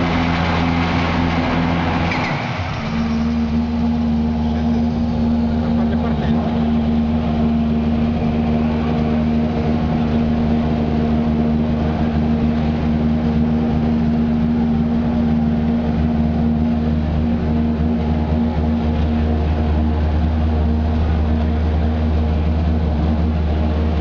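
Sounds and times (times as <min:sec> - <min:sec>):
car engine idling: 0:00.0 - 0:24.0.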